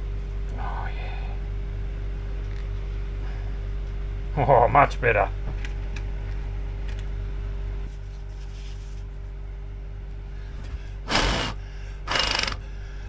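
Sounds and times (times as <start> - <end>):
low machine hum with pulsing: 0.0 - 13.0.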